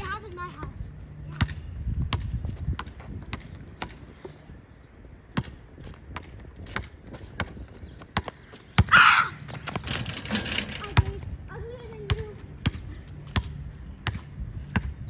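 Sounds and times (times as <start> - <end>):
basketball bouncing: 1.3 - 4.0, 5.3 - 11.2, 11.9 - 15.0.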